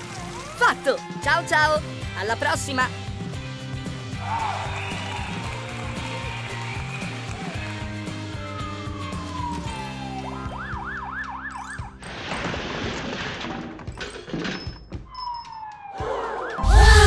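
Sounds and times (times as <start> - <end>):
warbling siren-like wail: 0.0 - 1.8, 8.2 - 11.8, 15.6 - 17.0
cartoon background music: 0.0 - 3.4, 4.0 - 12.3, 15.6 - 17.0.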